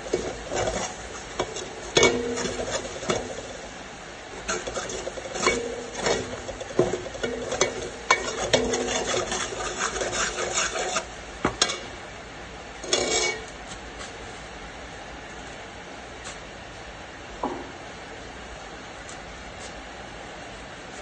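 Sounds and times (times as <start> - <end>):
metal spoon scraping pot: 0.0 - 3.5, 4.4 - 11.9, 12.8 - 13.5.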